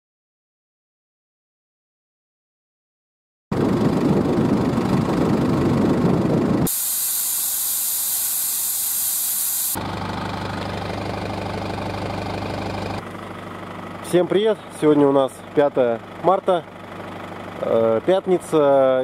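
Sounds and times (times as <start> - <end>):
loud rough rumbling: 3.5 - 6.7
van engine idling: 3.6 - 6.7, 9.8 - 19.0
air hissing out of tyre: 6.7 - 9.8.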